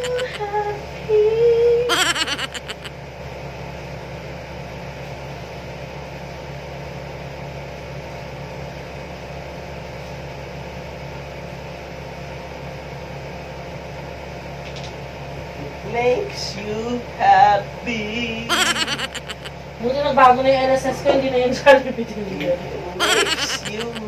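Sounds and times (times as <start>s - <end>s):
brief laugh: 0.0s - 0.4s, 1.9s - 2.9s, 18.5s - 19.5s, 23.0s - 24.0s
air conditioner and fan humming: 0.0s - 24.0s.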